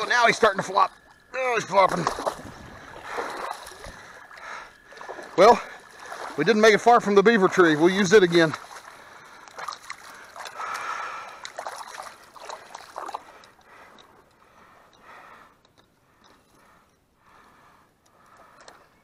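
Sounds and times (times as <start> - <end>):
muddy water splashing: 0.0 - 14.8.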